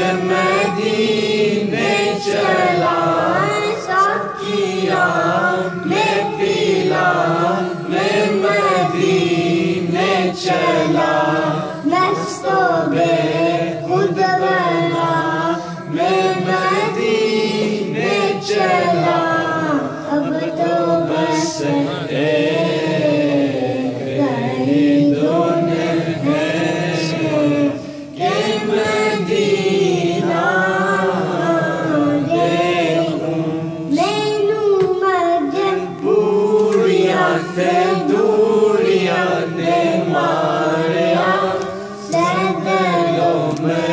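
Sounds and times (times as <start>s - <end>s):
low vocal drone: 0.0s - 34.6s
boy singing into a microphone: 0.0s - 43.9s.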